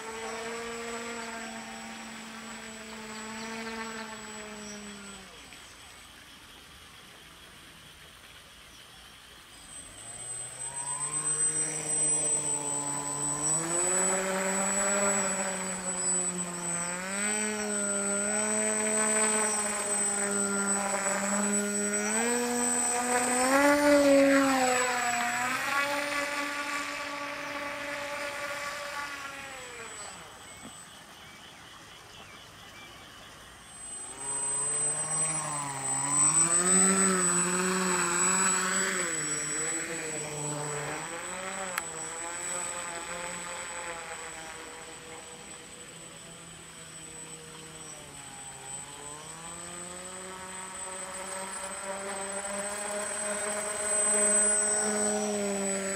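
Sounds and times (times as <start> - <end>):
model plane motor and propeller: 0.0 - 55.9.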